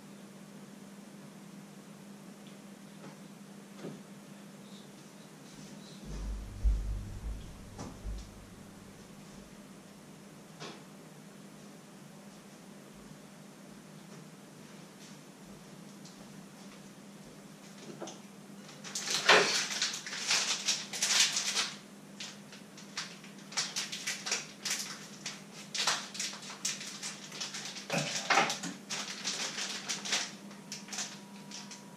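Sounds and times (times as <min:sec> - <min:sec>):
steady low hum: 0:04.1 - 0:10.2
small items rustling and clicking: 0:18.7 - 0:31.8.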